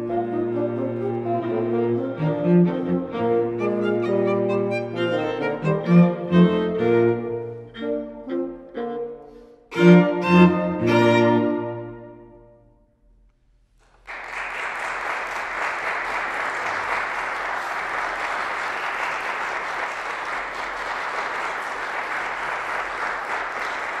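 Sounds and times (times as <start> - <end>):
bassoon and string trio chord: 0.0 - 12.7
audience applause: 13.8 - 24.0.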